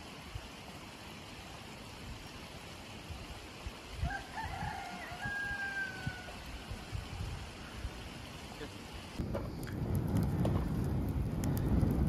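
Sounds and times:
background hiss: 0.0 - 9.2
rooster crowing: 4.0 - 6.6.

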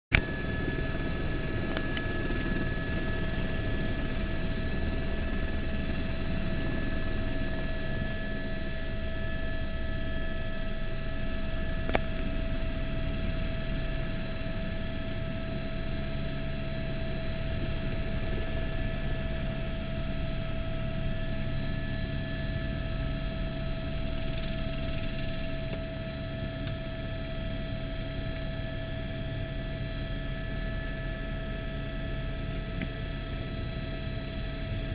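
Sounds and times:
helicopter turbine whine: 0.1 - 34.9.

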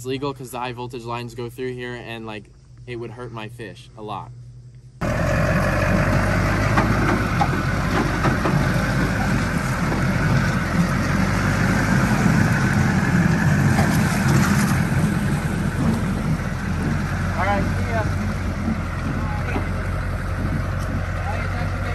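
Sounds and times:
truck engine running low: 5.0 - 21.9.

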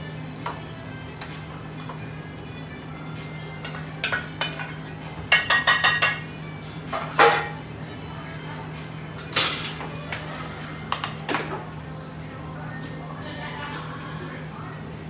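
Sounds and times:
pots and pans clanking: 3.5 - 6.3, 6.9 - 7.6, 9.2 - 10.2, 10.9 - 11.7.

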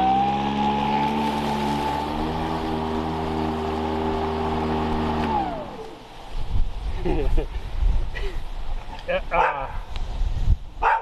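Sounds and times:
electric lawn mower whine: 0.0 - 6.4.

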